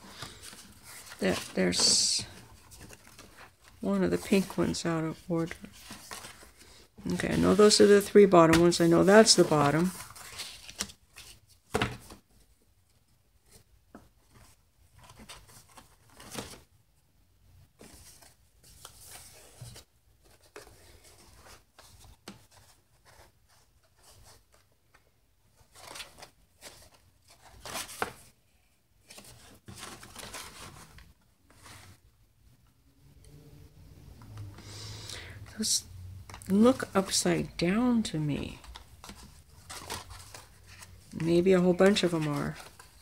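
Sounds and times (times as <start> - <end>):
paper pages rustling on table: 0.0 - 12.6, 13.4 - 16.7, 17.8 - 28.4, 29.0 - 32.0, 38.4 - 43.0.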